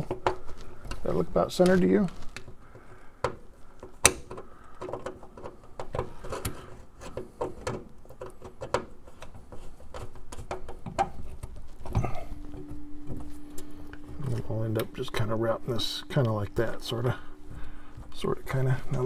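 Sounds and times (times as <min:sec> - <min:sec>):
faint steady hum: 0:00.0 - 0:19.0
small clicks and taps: 0:01.6 - 0:14.4.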